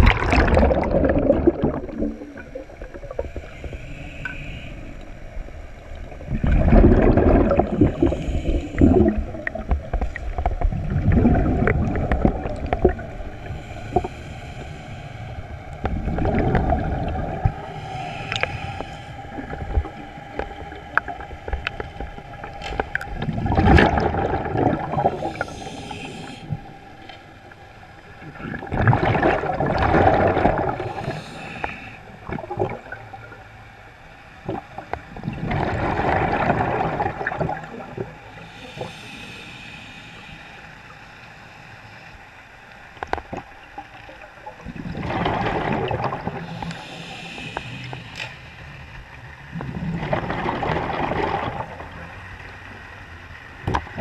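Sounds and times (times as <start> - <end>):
exhaled bubbles underwater: 0.0 - 33.5, 34.3 - 39.4, 43.0 - 48.2, 48.9 - 54.0
regulator inhalation hiss: 3.1 - 5.1, 7.7 - 9.0, 13.3 - 15.7, 17.6 - 21.9, 25.1 - 27.9, 30.8 - 32.2, 38.3 - 42.1, 46.4 - 48.8.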